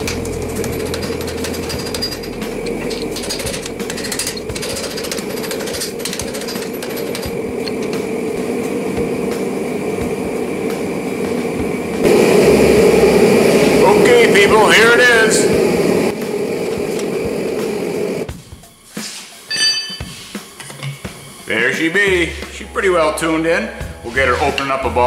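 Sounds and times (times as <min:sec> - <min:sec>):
forge roaring: 0:00.0 - 0:18.3
hammer clinking on anvil: 0:19.5 - 0:20.1.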